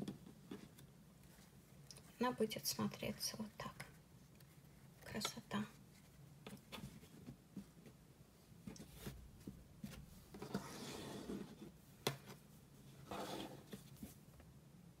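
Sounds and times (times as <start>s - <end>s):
rustling of pieces across tabletop: 8.6s - 14.4s.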